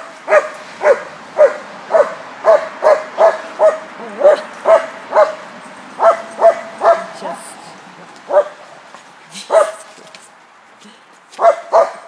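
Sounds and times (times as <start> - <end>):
dog barking: 0.3 - 7.2, 8.3 - 8.6, 9.5 - 9.9, 11.4 - 12.0.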